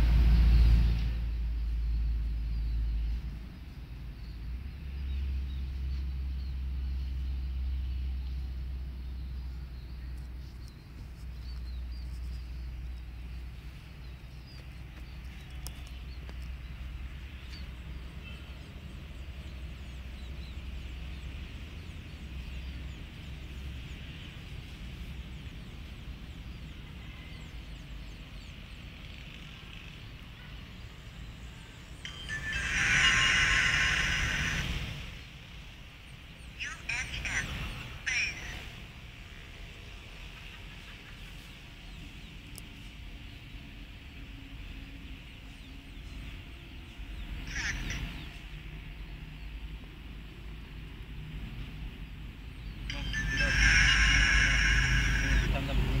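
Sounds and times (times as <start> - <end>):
road traffic rumble: 0.0 - 56.0
faint bird chirps: 45.7 - 49.4.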